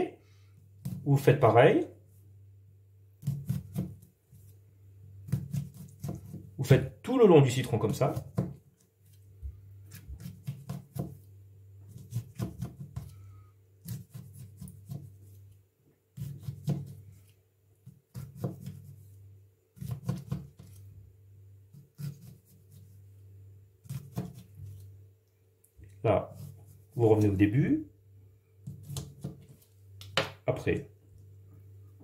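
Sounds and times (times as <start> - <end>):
low steady hum: 0.0 - 32.0
knife cutting on cutting board: 3.2 - 4.0, 5.3 - 6.5, 11.9 - 13.1, 13.8 - 15.4, 16.2 - 17.0, 18.1 - 19.1, 19.8 - 20.8, 21.7 - 23.0, 23.8 - 24.8, 28.6 - 29.7.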